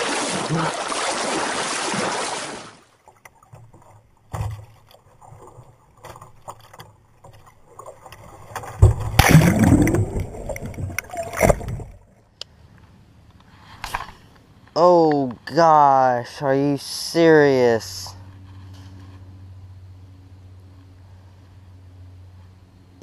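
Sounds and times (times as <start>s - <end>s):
water rushing along a boat: 0.0s - 12.1s
thumps: 8.5s - 12.1s.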